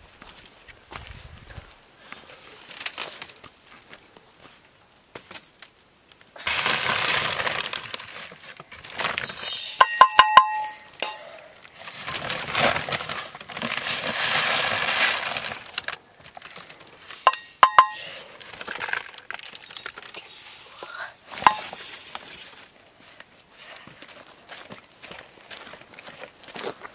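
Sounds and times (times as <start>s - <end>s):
kitchenware clinking: 9.8s - 11.3s, 17.2s - 18.1s, 21.3s - 21.9s
rough scraping noise: 11.8s - 15.7s.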